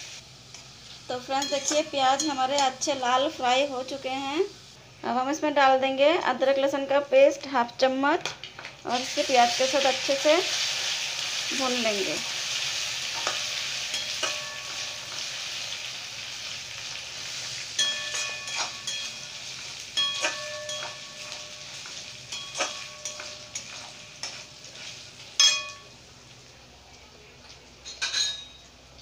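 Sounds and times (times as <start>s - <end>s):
onions sizzling in hot oil: 0.0s - 7.4s, 8.2s - 29.0s
sharp metal clanks: 17.8s - 19.2s, 20.0s - 24.3s.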